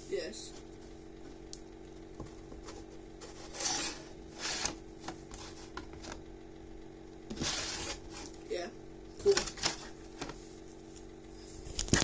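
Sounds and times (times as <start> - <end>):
steady low hum: 0.0 - 12.0
plastic figures rustling and scraping: 2.3 - 6.2, 7.3 - 8.4, 9.2 - 10.4.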